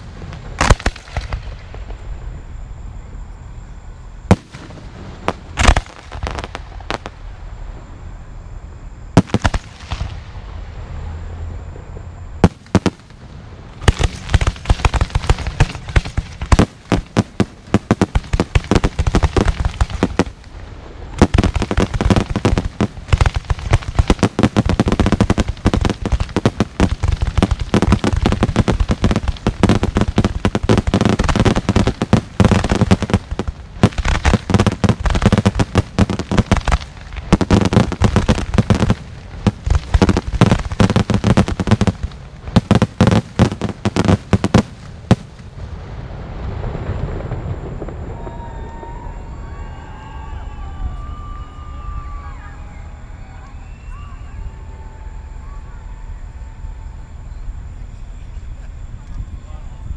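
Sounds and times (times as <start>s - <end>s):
fireworks launching and bursting: 0.0s - 2.5s, 4.2s - 7.4s, 9.1s - 10.8s, 12.4s - 49.2s.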